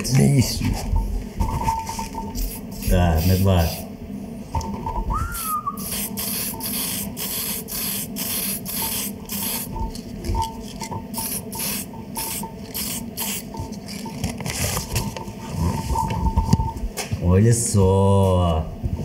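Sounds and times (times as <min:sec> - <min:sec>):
spray can hissing in bursts: 0:05.4 - 0:09.7, 0:11.2 - 0:13.5.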